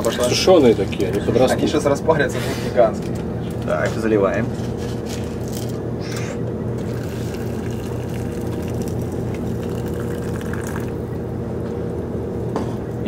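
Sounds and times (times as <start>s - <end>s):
steady low hum: 0.0s - 13.0s
hot water running from tap: 6.8s - 11.1s.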